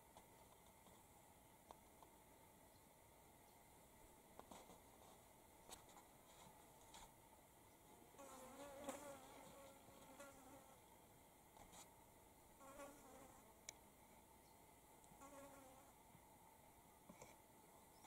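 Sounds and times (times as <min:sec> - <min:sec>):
flying insect buzzing: 0:08.2 - 0:10.8, 0:12.6 - 0:13.4, 0:15.2 - 0:15.9.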